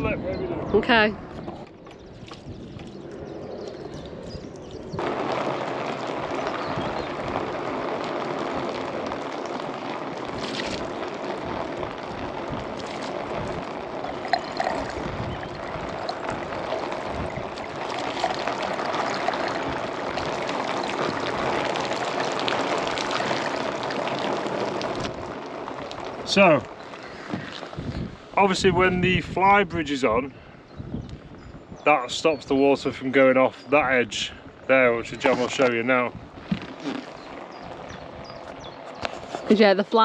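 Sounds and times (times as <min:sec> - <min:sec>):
water pouring onto boat roof: 0:01.6 - 0:28.8, 0:32.0 - 0:40.0
water running down a drain: 0:01.9 - 0:28.1, 0:34.8 - 0:39.4.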